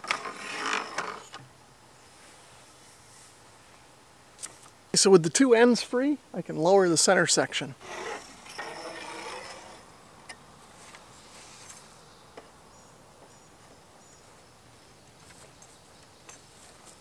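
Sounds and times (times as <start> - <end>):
scraping rustle: 0.0 - 1.5, 7.8 - 9.9, 10.6 - 12.0, 15.2 - 17.0
insects chirping: 7.8 - 17.0.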